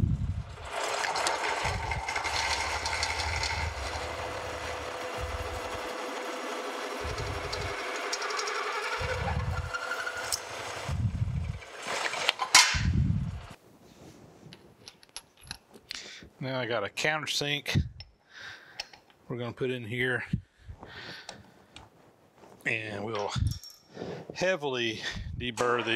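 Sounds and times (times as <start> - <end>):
drill cutting sheet metal: 0.5 - 12.7.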